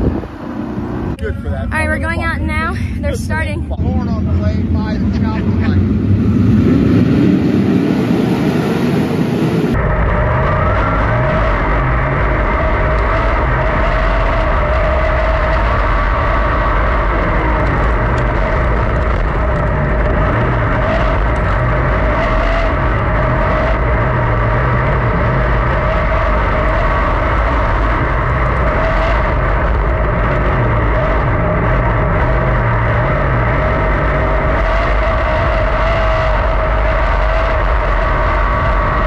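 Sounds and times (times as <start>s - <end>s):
race car engine running: 0.0s - 39.0s.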